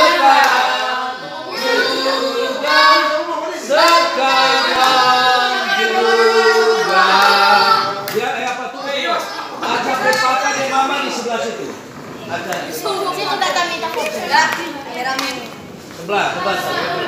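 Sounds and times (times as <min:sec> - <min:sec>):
children singing together: 0:00.0 - 0:08.2.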